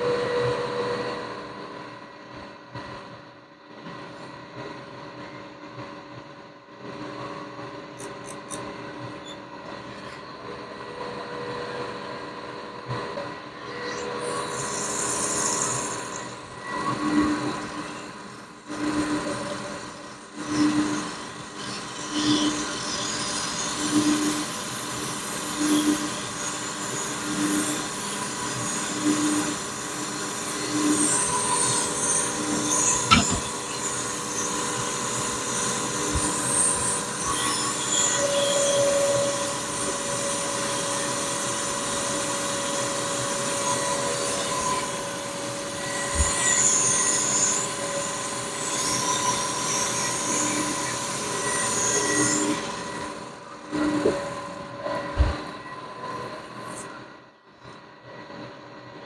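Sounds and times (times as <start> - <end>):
machine cutting metal squealing: 18.8 - 56.9.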